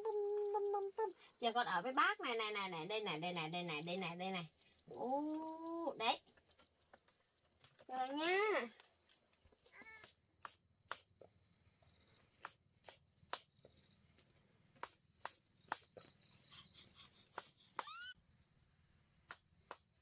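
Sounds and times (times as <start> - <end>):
hand claps: 10.0 - 11.1, 12.4 - 13.5, 14.8 - 16.0, 19.3 - 19.9.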